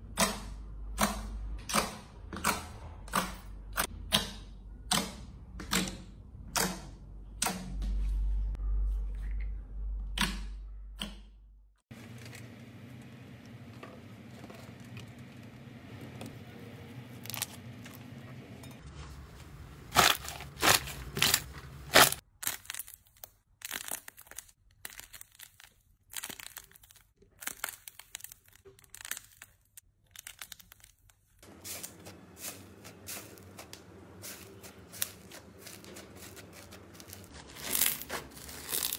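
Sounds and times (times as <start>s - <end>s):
slime popping and crackling: 19.9s - 38.9s.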